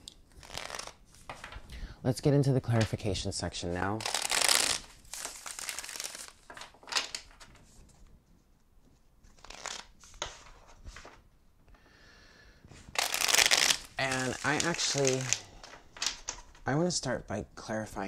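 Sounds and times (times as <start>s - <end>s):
cards being shuffled: 0.0s - 1.6s, 4.0s - 8.0s, 9.2s - 11.2s, 12.9s - 16.6s.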